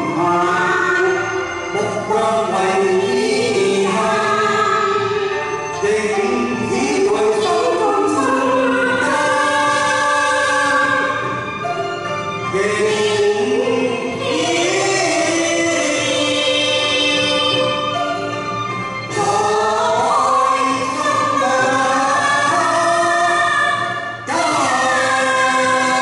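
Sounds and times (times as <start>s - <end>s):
man and woman singing duet: 0.0s - 11.4s, 12.5s - 18.3s, 19.1s - 26.0s
backing music: 0.0s - 26.0s.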